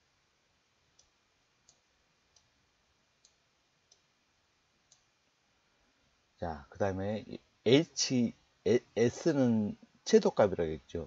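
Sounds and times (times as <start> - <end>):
faint computer mouse clicks: 0.9 - 2.5, 3.2 - 4.1, 4.9 - 5.1.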